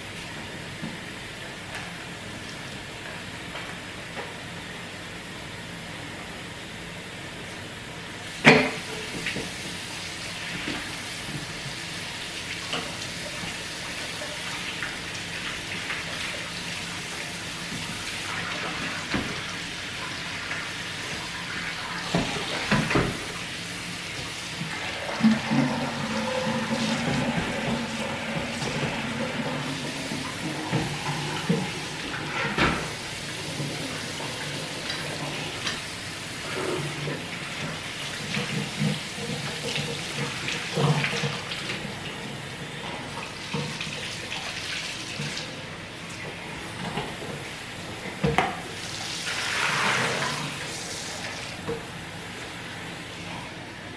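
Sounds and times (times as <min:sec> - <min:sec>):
faucet running into sink: 0:24.6 - 0:35.3.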